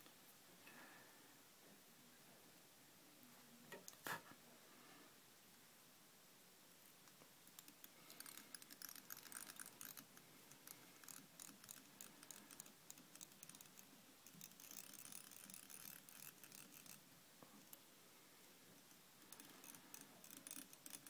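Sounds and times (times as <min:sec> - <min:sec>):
thread winding crackle: 0:07.0 - 0:17.0, 0:18.8 - 0:21.0.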